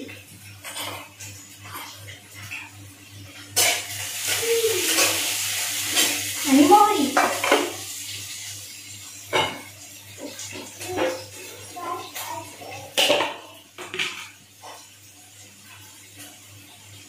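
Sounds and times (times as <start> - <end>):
onion sizzling in hot oil: 0.0 - 17.0.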